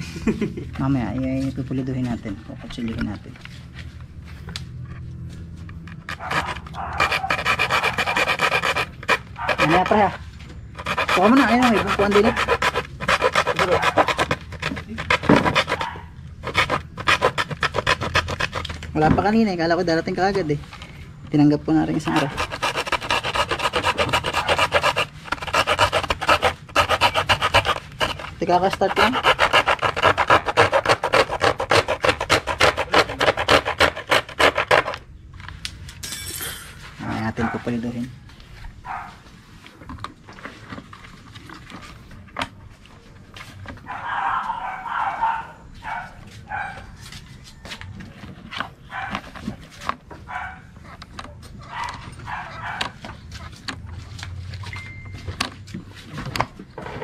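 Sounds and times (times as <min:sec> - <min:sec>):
hand filing strokes: 0:06.1 - 0:10.2, 0:10.8 - 0:18.8, 0:22.0 - 0:35.0
dog barking: 0:06.2 - 0:08.3, 0:09.4 - 0:09.8, 0:15.7 - 0:16.2, 0:38.8 - 0:39.2, 0:43.8 - 0:47.0, 0:48.9 - 0:49.3, 0:50.2 - 0:53.0.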